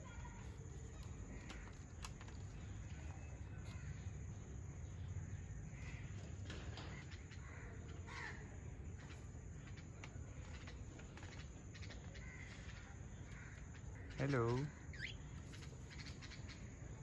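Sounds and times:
parakeets squawking: 14.1s - 16.4s.

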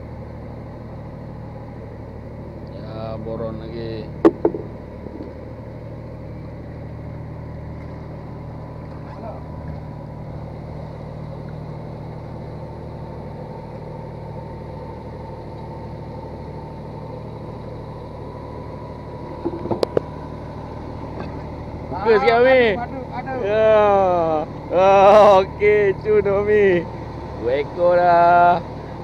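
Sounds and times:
boat engine humming: 0.0s - 29.0s
faint constant whine: 0.0s - 29.0s
sharp knocks: 4.2s - 5.3s.

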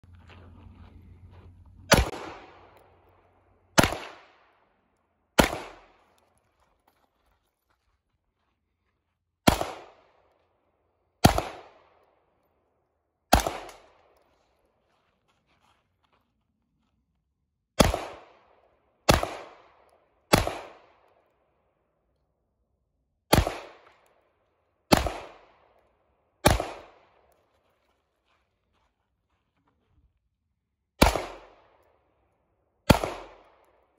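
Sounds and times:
pistol shots with echo: 1.9s - 4.7s, 5.4s - 6.1s, 9.4s - 10.2s, 11.2s - 12.1s, 13.3s - 14.2s, 17.8s - 21.1s, 23.3s - 24.1s, 24.9s - 25.8s, 26.4s - 27.4s, 31.0s - 31.9s, 32.8s - 33.9s.

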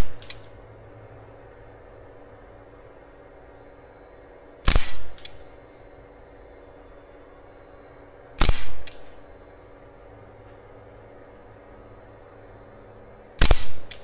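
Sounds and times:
air rifle shot crack: 4.6s - 5.4s, 8.4s - 9.1s, 13.4s - 14.0s.

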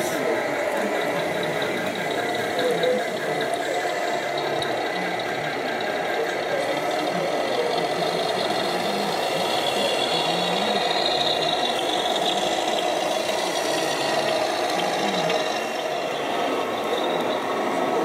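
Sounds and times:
simulated diesel engine rattling: 0.0s - 18.0s.

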